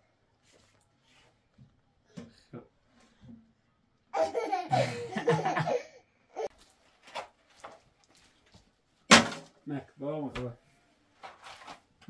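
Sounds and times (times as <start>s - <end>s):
person laughing: 4.2s - 6.0s.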